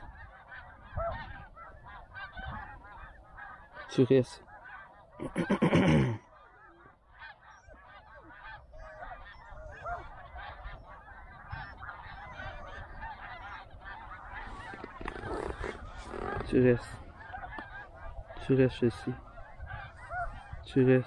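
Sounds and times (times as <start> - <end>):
geese honking: 0.0 - 21.0.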